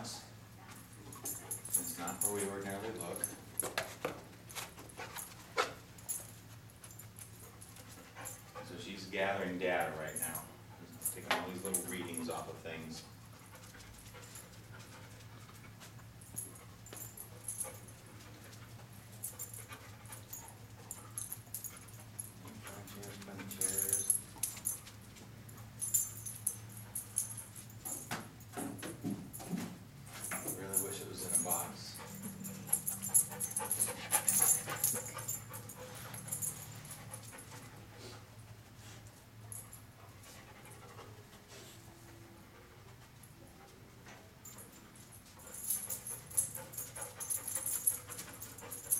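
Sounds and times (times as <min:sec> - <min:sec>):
steady low hum: 0:00.0 - 0:48.9
collar tags jingling: 0:00.6 - 0:28.6, 0:29.3 - 0:38.0, 0:44.4 - 0:48.9
dog panting: 0:13.1 - 0:24.8, 0:30.3 - 0:43.8, 0:44.4 - 0:48.9.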